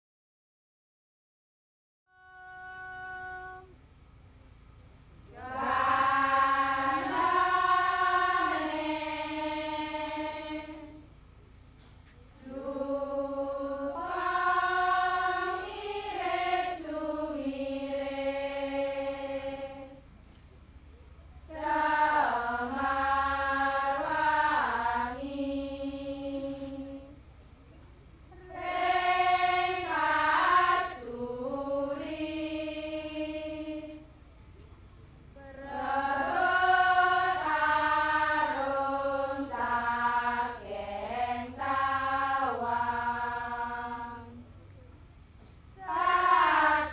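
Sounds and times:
large chorus chanting in unison: 5.3 - 11.0, 12.4 - 20.0, 21.4 - 27.2, 28.3 - 34.1, 35.4 - 44.5, 45.7 - 46.9.

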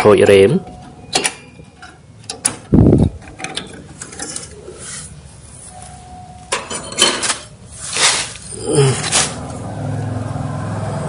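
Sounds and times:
rustling scrapes among cables: 7.3 - 9.5.

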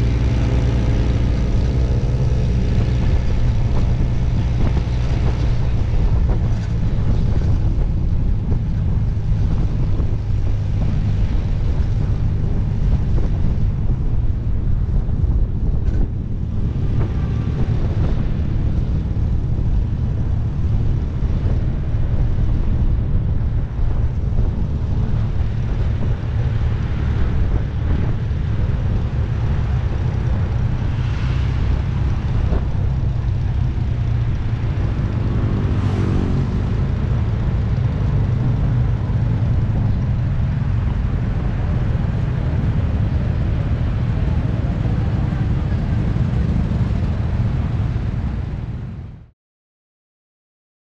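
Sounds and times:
motorcycle engine running: 0.0 - 48.6
wind noise on microphone: 0.0 - 49.3.

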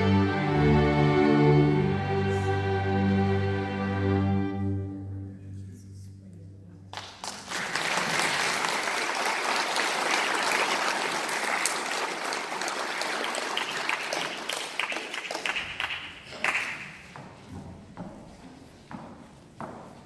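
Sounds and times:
audience applause: 7.0 - 17.1.

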